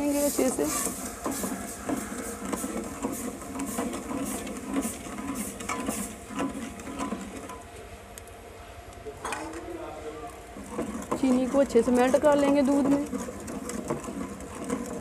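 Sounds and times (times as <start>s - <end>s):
metal spoon scraping steel pot: 10.7s - 15.0s.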